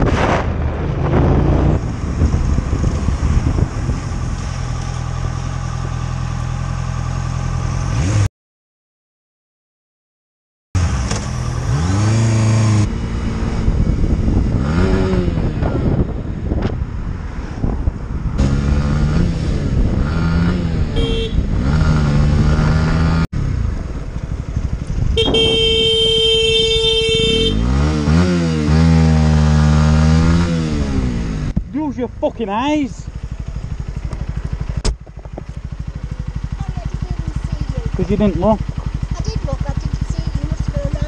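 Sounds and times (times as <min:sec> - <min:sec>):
motorcycle engine revving: 0:00.0 - 0:08.3, 0:10.8 - 0:41.0
vehicle horn: 0:20.8 - 0:21.6, 0:25.1 - 0:27.8.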